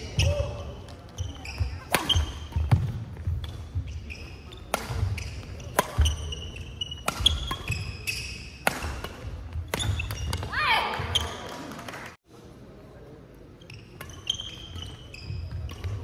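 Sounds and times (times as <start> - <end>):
court shoes squeaking: 0.0 - 11.9, 13.4 - 16.0
racket striking shuttlecock: 1.9 - 3.7, 4.7 - 10.5.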